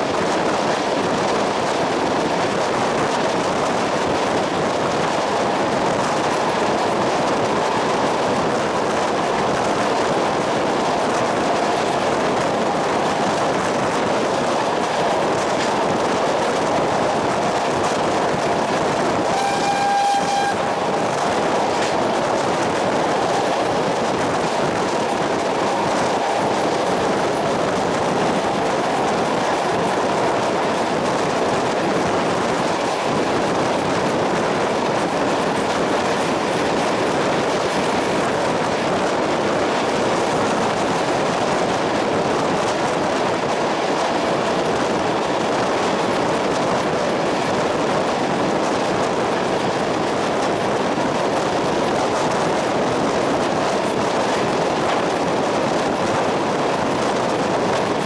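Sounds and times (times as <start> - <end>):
train wheels on track: 0.0 - 58.0.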